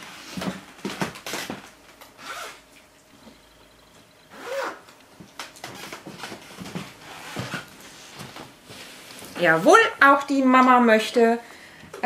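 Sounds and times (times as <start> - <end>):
rustling handling sounds: 4.4 - 9.9.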